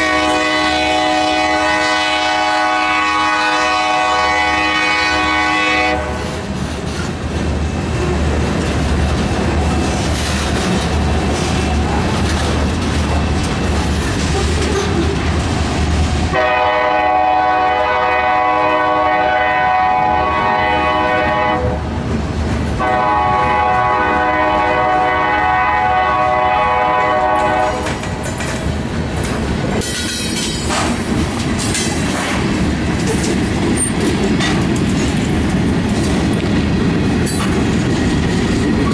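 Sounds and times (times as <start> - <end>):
locomotive horn blasts: 0.0 - 6.3, 16.3 - 21.8, 22.8 - 28.0
train wheels clickety-clack: 5.2 - 16.6, 21.9 - 38.9.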